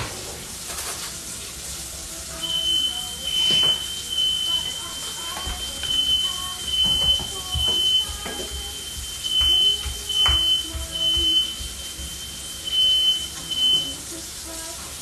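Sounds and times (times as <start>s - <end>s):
smoke alarm beeping: 2.3s - 14.1s
cooking utensils clattering: 3.3s - 12.4s.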